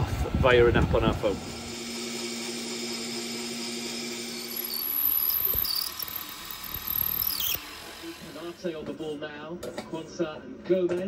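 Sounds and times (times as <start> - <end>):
lathe cutting aluminium: 1.4 - 8.7
metal lathe running: 1.4 - 8.7
high-pitched squeals: 4.1 - 7.7.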